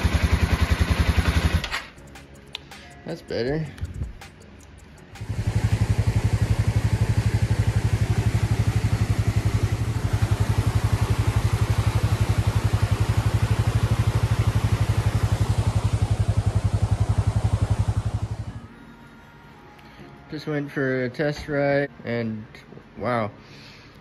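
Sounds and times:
motorcycle engine thumping: 5.2 - 18.4.

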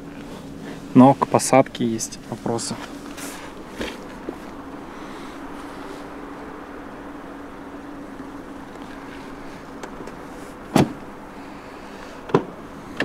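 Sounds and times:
steady low hum: 0.0 - 13.0
car doors shutting: 2.7 - 5.8, 8.0 - 13.0.

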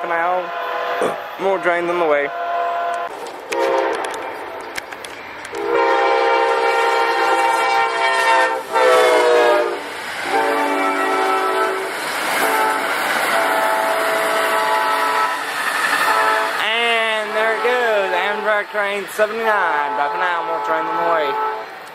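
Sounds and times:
train cars rumbling on rails: 0.0 - 21.9
locomotive horn blasts: 0.2 - 4.2, 5.5 - 15.4, 16.1 - 16.8, 19.7 - 21.7.

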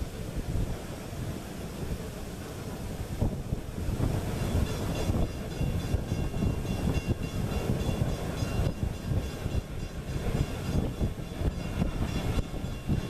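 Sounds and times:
steam locomotive running: 0.0 - 13.0.

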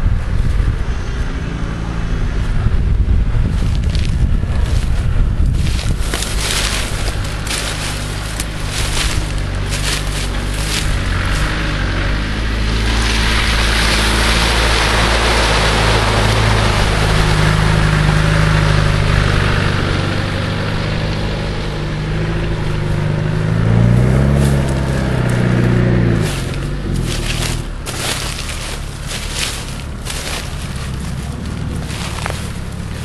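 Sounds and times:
mud and water churning: 0.0 - 33.0
car engine revving hard: 5.6 - 33.0.

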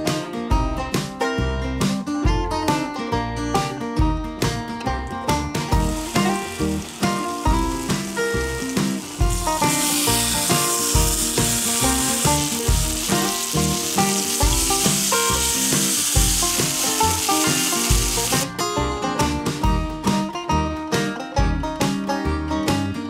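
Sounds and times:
background music with steady beat: 0.0 - 23.0
steak sizzling in a frying pan: 5.7 - 18.5.

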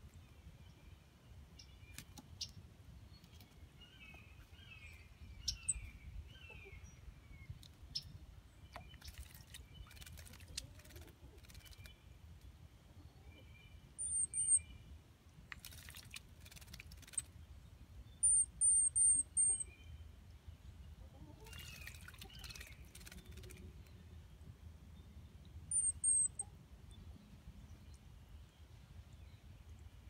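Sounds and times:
bird splashing in water: 8.8 - 11.8, 15.5 - 17.3, 21.6 - 23.6
high thin bird chirps: 14.0 - 14.8, 18.2 - 19.7, 21.4 - 23.6, 25.7 - 26.5.

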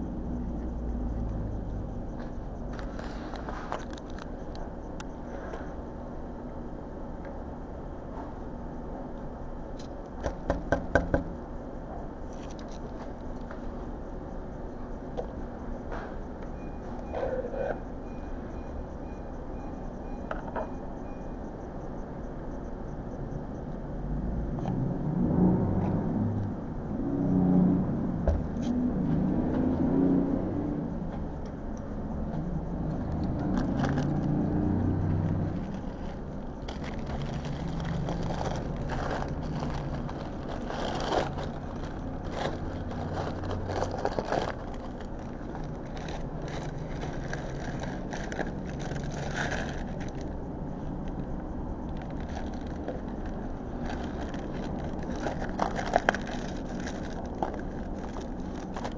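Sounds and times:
road traffic rumble: 0.0 - 58.9
truck passing: 23.8 - 58.9
foam cup and paper wrapper handled: 35.5 - 50.3, 51.9 - 58.9.

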